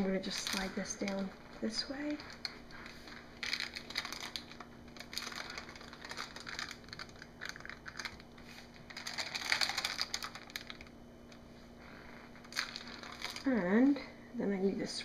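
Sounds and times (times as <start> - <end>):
faint steady hum: 0.0 - 15.0
paper rustling: 0.2 - 10.9.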